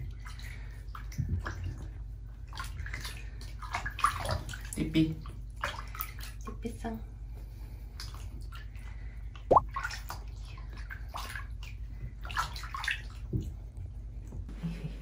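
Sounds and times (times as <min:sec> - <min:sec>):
water sloshing in plastic basin: 0:00.0 - 0:06.9, 0:07.9 - 0:13.6.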